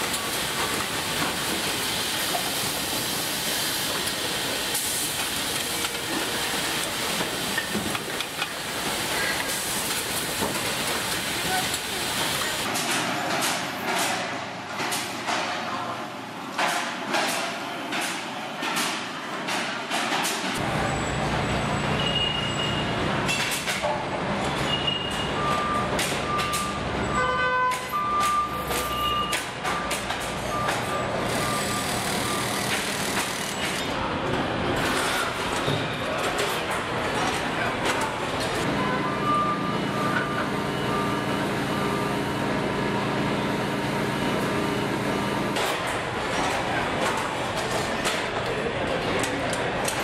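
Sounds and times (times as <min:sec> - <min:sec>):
tool clacks and hisses: 0:00.0 - 0:15.5
short electronic beeps: 0:27.9 - 0:29.4.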